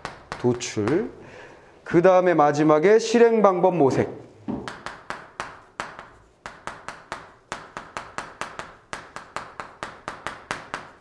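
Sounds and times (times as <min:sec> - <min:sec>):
writing taps on a board: 0:00.0 - 0:01.1, 0:04.5 - 0:11.0.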